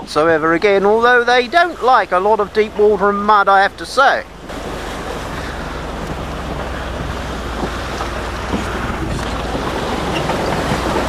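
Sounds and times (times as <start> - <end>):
vehicle engine running: 0.0 - 11.0
wind noise on microphone: 4.3 - 11.0.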